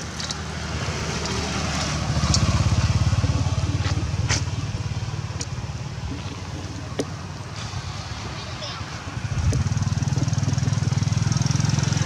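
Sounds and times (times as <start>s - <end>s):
vehicle engine passing: 0.0s - 12.0s.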